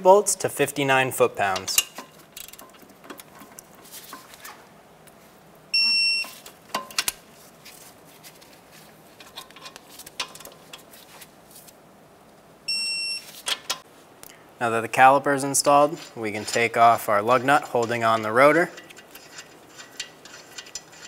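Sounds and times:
metal tools clicking: 1.6 - 3.8, 15.9 - 21.0
torque wrench beep: 5.8 - 6.4, 12.7 - 13.2.

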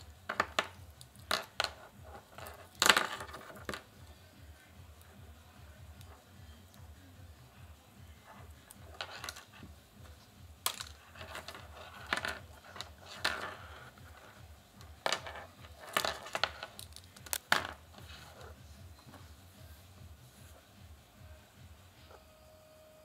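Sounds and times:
earphone cable rustling: 8.4 - 19.4.

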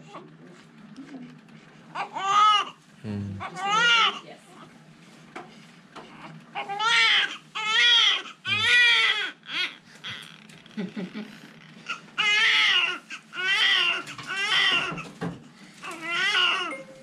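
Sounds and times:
baby crying: 2.0 - 2.7, 3.4 - 4.2, 6.6 - 10.3, 15.8 - 16.8
baby whimpering: 6.2 - 10.4.

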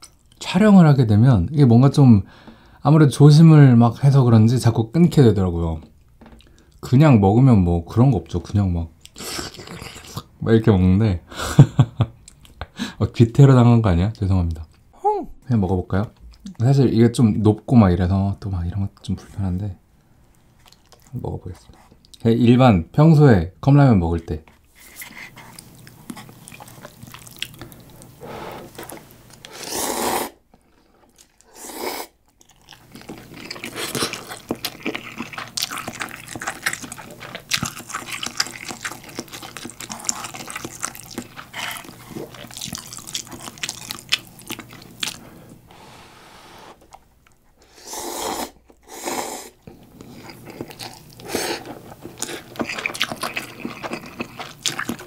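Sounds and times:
wet chewing clicks: 25.0 - 28.1, 32.2 - 45.2, 49.6 - 55.0
slurping noodles: 28.2 - 32.2, 47.7 - 55.0.

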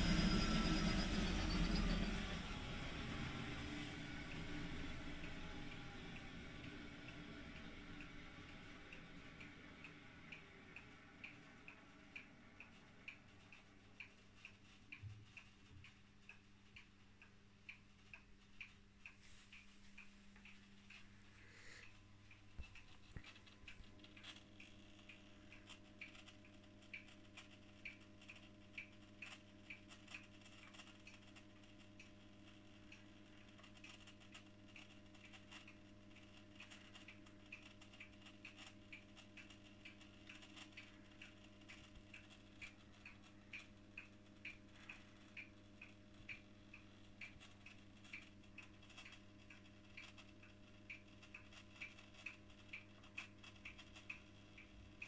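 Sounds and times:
washing machine hum: 0.0 - 15.9
light regular ticking: 3.6 - 55.0.

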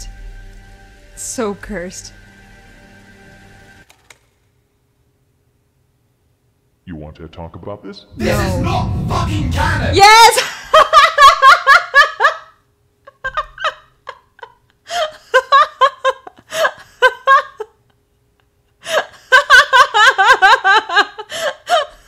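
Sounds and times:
young woman laughing: 10.4 - 17.9, 18.8 - 22.0.

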